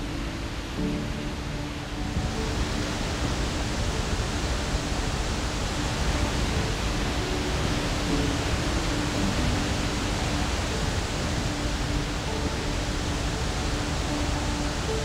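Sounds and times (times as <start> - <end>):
faint sustained music notes: 0.0 - 15.0
waterfall rushing: 0.0 - 15.0.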